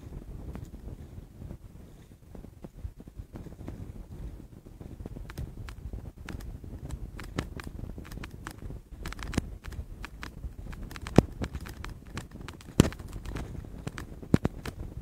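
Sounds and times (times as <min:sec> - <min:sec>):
wind buffeting microphone: 0:00.0 - 0:15.0
handling clicks and knocks: 0:07.2 - 0:14.8.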